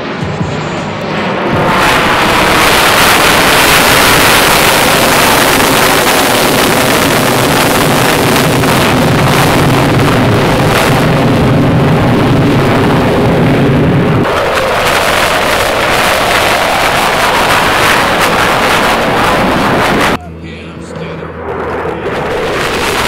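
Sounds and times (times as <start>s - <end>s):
jet engine roar: 0.0s - 23.0s.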